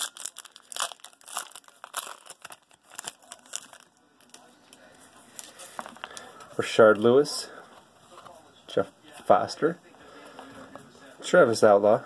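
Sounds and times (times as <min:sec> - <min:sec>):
foil wrapper crinkling and tearing: 0:00.0 - 0:06.3.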